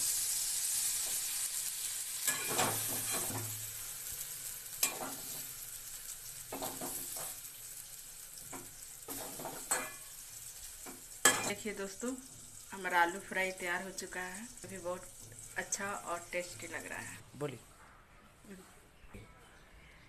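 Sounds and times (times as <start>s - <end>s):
oil sizzling: 0.0s - 17.3s
metal spatula scraping a pan: 2.2s - 3.7s, 4.7s - 5.6s, 6.5s - 7.5s, 8.5s - 12.7s.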